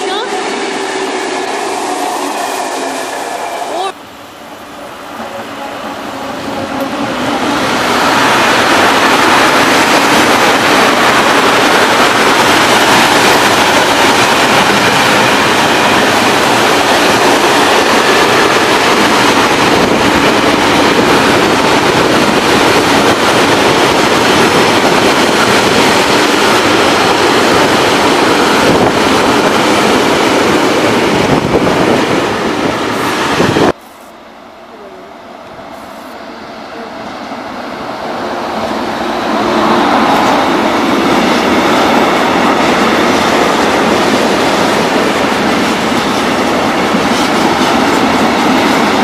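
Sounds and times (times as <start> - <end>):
freight train wheels rumbling on rails: 0.0 - 49.0.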